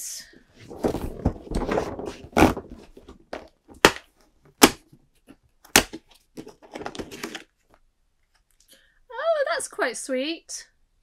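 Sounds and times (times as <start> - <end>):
cardboard box rustling and thudding: 0.6 - 3.9
cardboard cracking: 0.6 - 4.8.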